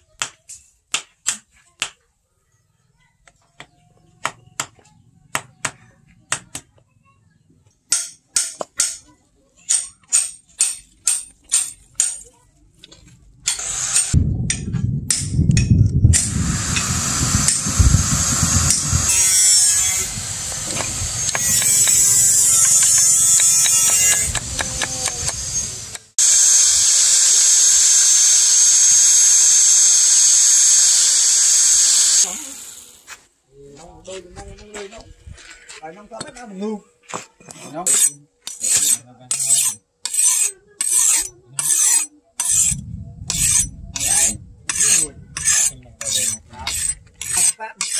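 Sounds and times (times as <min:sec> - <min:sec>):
scraping and rumbling work noise: 0:10.8 - 0:33.0, 0:37.4 - 0:47.9
angle grinder whining: 0:13.5 - 0:14.2, 0:16.1 - 0:33.1, 0:37.9 - 0:47.9.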